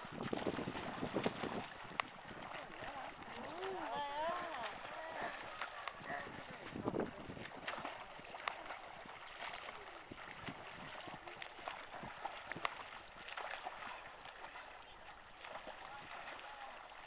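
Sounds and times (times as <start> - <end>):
swimmers splashing in pool water: 0.0 - 17.0
faint voices: 2.4 - 7.2.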